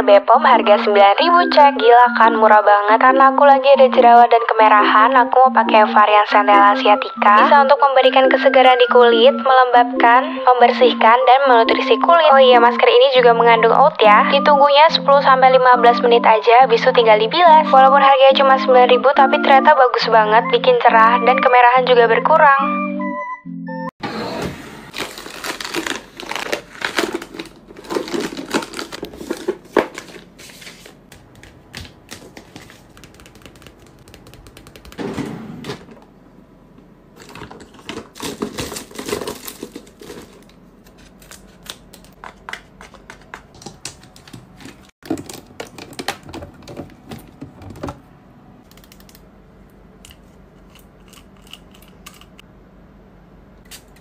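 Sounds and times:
foil sachets rustling and crinkling: 24.9s - 31.3s, 37.2s - 42.2s
plastic items clicking in a tray: 31.2s - 35.0s, 41.6s - 48.0s.

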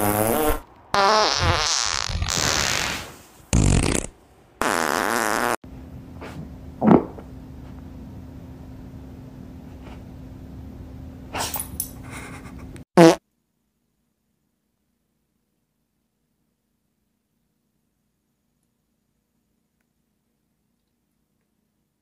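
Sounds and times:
loud farts: 0.0s - 5.6s, 13.0s - 13.2s.

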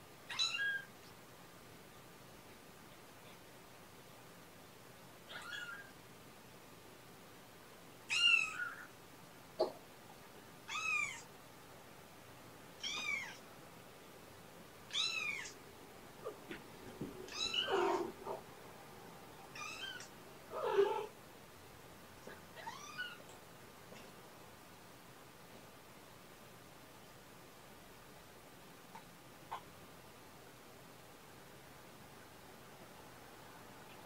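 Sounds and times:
kitten meowing: 0.3s - 0.9s, 5.3s - 5.9s, 8.1s - 8.9s, 10.7s - 11.2s, 12.8s - 13.4s, 14.9s - 15.6s, 17.3s - 18.1s, 19.6s - 21.1s, 22.6s - 23.2s.

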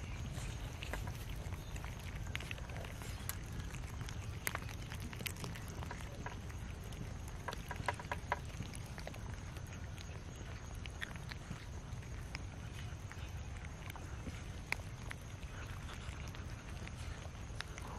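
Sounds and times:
cats chewing and lapping: 0.0s - 17.9s
low steady rumble: 0.0s - 17.9s.

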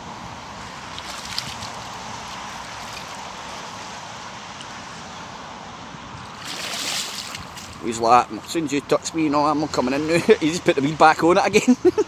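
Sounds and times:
moving water: 0.0s - 12.0s
wind: 0.0s - 12.0s.

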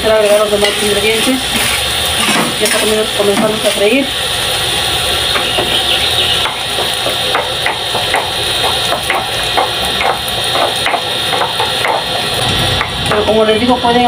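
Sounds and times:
chicken sizzling in a pan: 0.0s - 14.0s
stone pestle scraping in mortar: 1.5s - 2.8s.

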